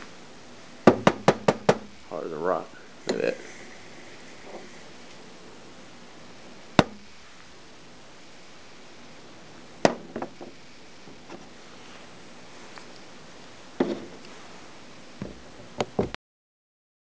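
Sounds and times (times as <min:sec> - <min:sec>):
hard object knocking on surface: 0:00.9 - 0:01.9.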